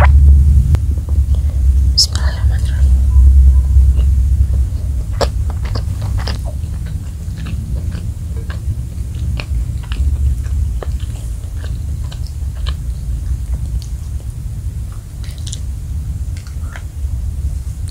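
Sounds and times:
low rumble: 0.0 - 17.9
chewing fried rice: 3.8 - 17.9.

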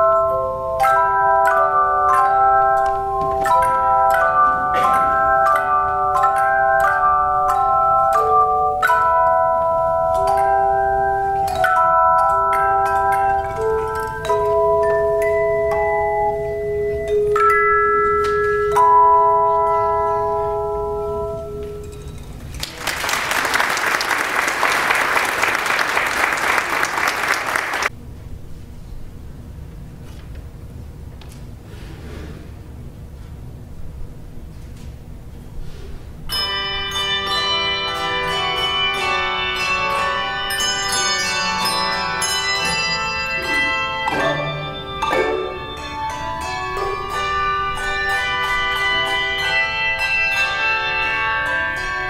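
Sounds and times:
handbell choir chords: 0.0 - 22.3, 36.3 - 52.0
audience applause: 22.6 - 27.9.

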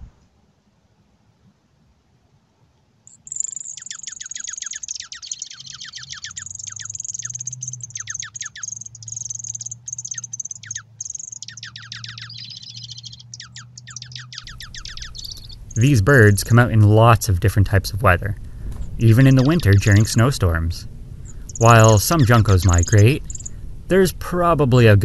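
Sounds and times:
faint low hum: 0.0 - 25.0
birds twittering: 3.1 - 17.1, 18.6 - 23.7.

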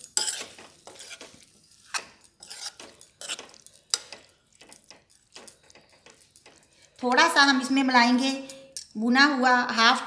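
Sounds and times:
metal spoon scraping pan: 0.0 - 7.4.

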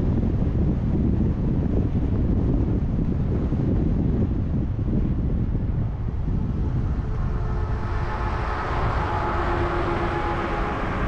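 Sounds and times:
road rumble: 0.0 - 11.0
wind noise: 0.0 - 11.0
faint steady whine: 3.6 - 11.0.

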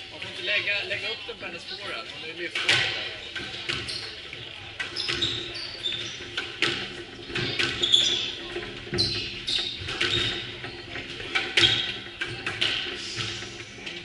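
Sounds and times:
shoes squeaking on wooden floor: 3.0 - 12.2
squash ball hitting rackets and wall: 4.8 - 13.5.

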